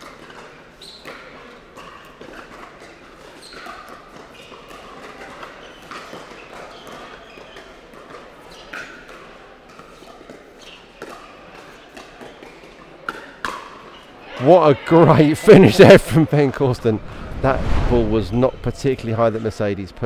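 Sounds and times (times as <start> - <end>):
shoe squeaks: 0.8 - 1.0, 3.4 - 3.7.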